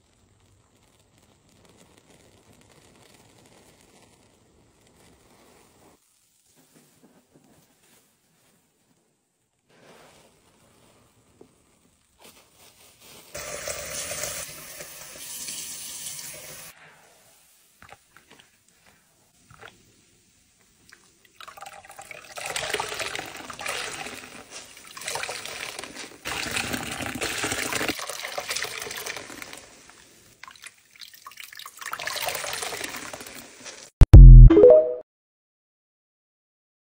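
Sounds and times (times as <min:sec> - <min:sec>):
water pouring from squeezed sponge: 0:20.8 - 0:33.9
rising electronic tone: 0:34.1 - 0:35.0.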